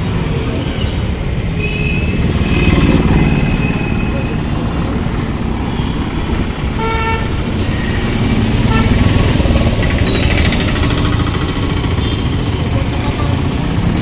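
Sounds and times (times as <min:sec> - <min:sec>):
traffic engines rumbling: 0:00.0 - 0:14.0
vehicle horn: 0:06.7 - 0:09.2.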